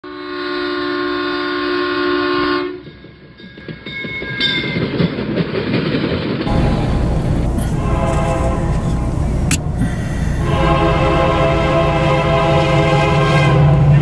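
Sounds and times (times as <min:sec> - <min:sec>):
locomotive air horn: 0:00.0 - 0:02.8, 0:06.5 - 0:14.0
train rumbling past: 0:02.2 - 0:14.0.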